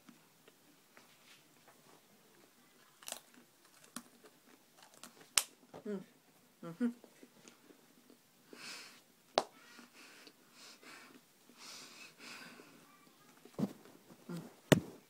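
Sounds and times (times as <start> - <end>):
chewing dry crackers: 2.3 - 5.6
breathing through the nose: 9.8 - 12.8
dull thump: 14.7 - 15.0.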